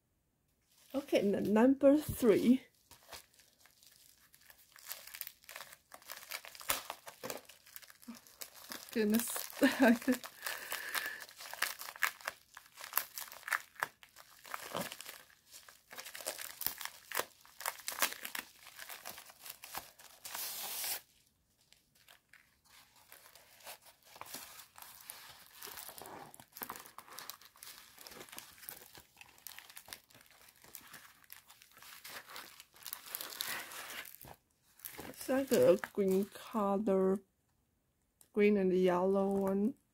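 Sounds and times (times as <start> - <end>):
plastic crinkling: 0.7 - 36.4
plastic wrap rustling: 0.7 - 36.4
plastic bag tearing: 2.7 - 21.1, 22.0 - 36.3.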